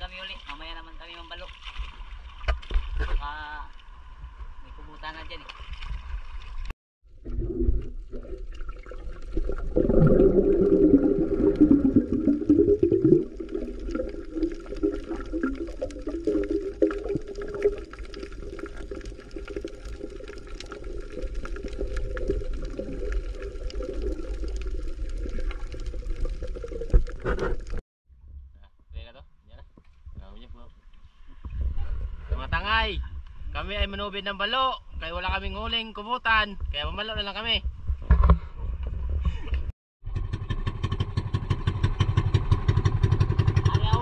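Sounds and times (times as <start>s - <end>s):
muffled underwater water wash: 5.7s - 27.8s.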